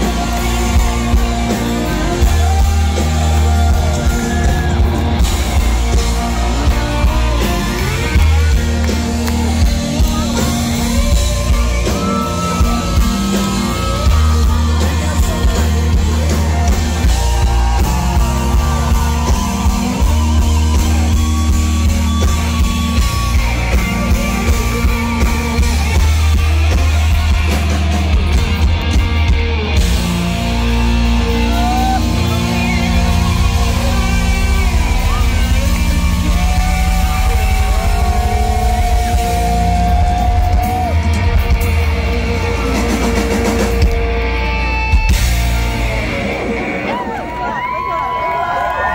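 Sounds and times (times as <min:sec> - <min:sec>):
person singing: 0:00.0 - 0:28.4
live country-rock band: 0:00.0 - 0:48.9.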